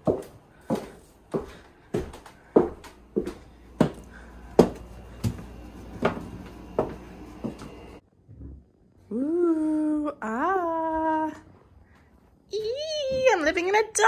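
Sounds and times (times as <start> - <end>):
footsteps on wooden floor: 0.0 - 8.0.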